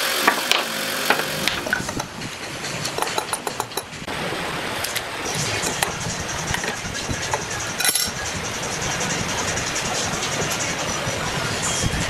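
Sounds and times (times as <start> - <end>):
wrench clicking and tapping on metal: 2.8 - 3.9
sharp metal clank: 7.8 - 8.2.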